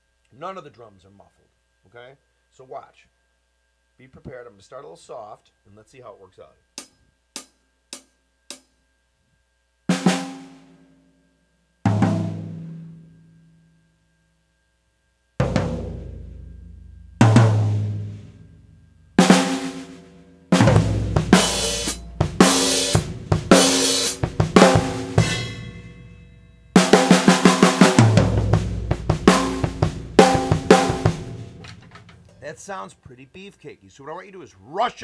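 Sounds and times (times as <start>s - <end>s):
acoustic drum kit: 6.7s - 8.8s, 9.9s - 10.9s, 11.8s - 13.2s, 15.4s - 32.8s
cymbals: 15.4s - 32.5s.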